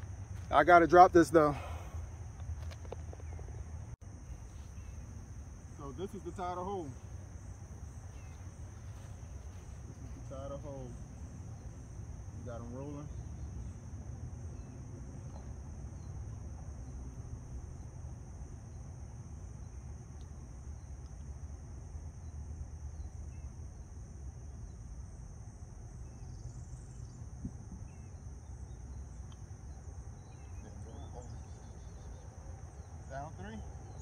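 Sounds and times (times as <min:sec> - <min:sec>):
insects droning: 0:00.0 - 0:34.0
faint bird chirps: 0:02.9 - 0:05.1, 0:07.8 - 0:13.8, 0:26.0 - 0:34.0.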